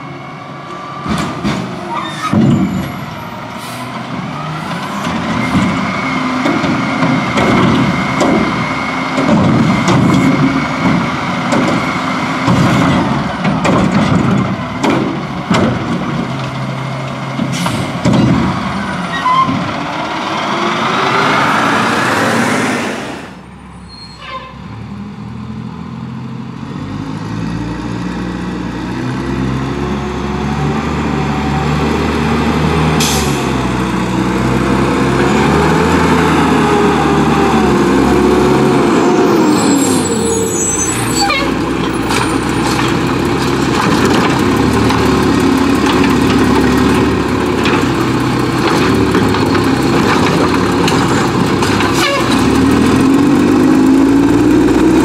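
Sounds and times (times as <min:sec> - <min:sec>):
garbage truck engine: 0:00.0 - 0:55.0
clanks and knocks: 0:05.0 - 0:19.8, 0:41.5 - 0:53.3.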